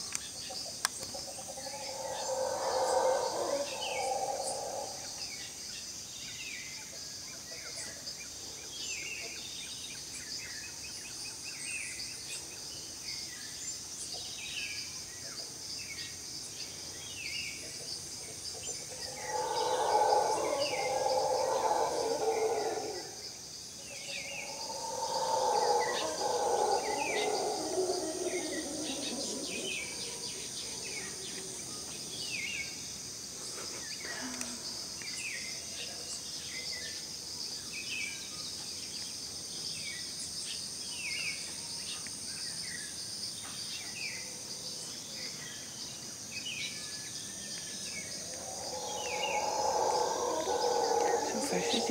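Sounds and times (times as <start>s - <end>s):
howler monkeys roaring: 1.2s - 5.3s, 18.6s - 32.2s, 47.8s - 51.9s
high-pitched insect drone: 1.2s - 5.5s, 18.6s - 32.6s, 47.7s - 51.9s.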